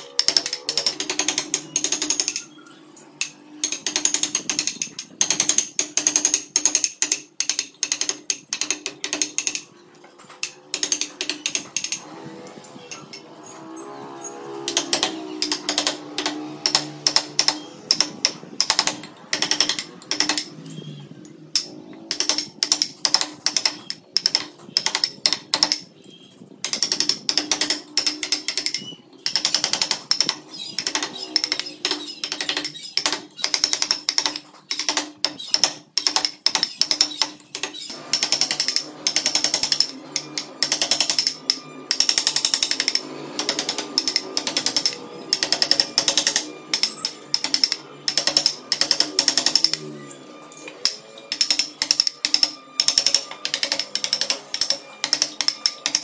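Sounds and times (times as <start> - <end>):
carving gouges chipping wood: 0.0 - 2.5, 3.2 - 9.6, 14.5 - 20.5, 26.7 - 49.9.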